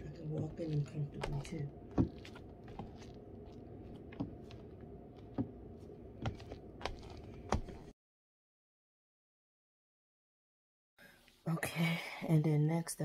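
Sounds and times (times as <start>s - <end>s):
low background hum: 0.0s - 7.9s
high-heel footsteps: 0.4s - 7.9s.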